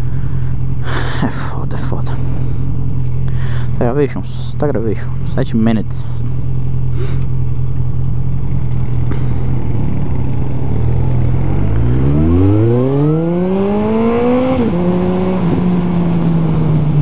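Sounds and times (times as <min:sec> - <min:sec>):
motorcycle engine revving: 0:06.5 - 0:17.0.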